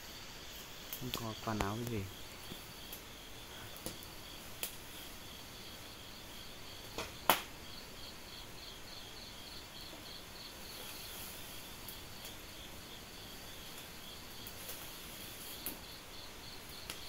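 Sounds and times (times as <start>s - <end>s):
crickets chirping: 0.0s - 17.0s
sharp crack: 3.7s - 4.8s, 6.9s - 7.6s.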